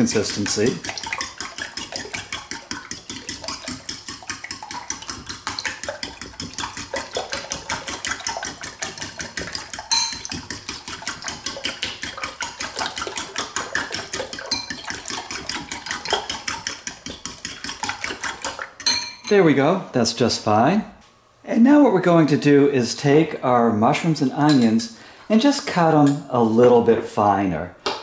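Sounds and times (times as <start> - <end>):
fork beating eggs in bowl: 0.0 - 19.0.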